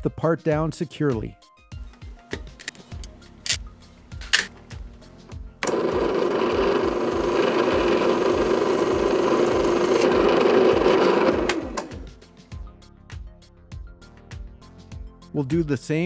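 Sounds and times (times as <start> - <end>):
drill press drilling aluminium: 5.6 - 12.2.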